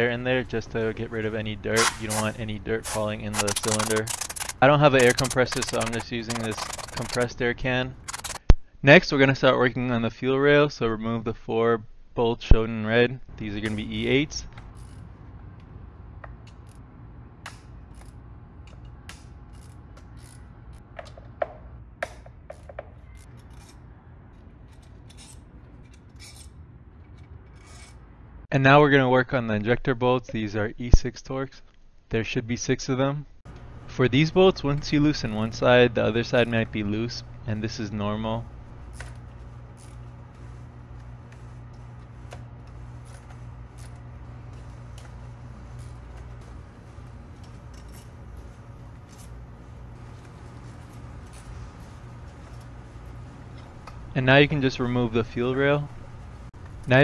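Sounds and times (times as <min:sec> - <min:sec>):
steady low hum: 0:00.0 - 0:08.5, 0:13.2 - 0:28.5, 0:33.5 - 0:57.0
hand tool metallic clicks: 0:01.8 - 0:07.3
hand tools clicking and tapping: 0:02.9 - 0:07.3, 0:08.0 - 0:08.4, 0:19.6 - 0:23.8.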